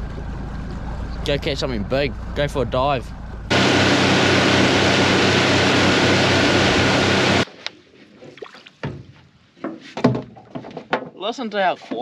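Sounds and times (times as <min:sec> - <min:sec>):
outboard motor running: 0:00.0 - 0:07.4.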